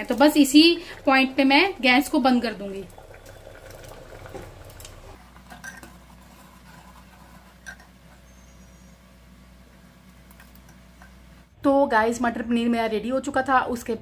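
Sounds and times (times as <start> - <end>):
low steady hum: 0.0 - 14.0
ladle stirring thick gravy: 2.9 - 8.4.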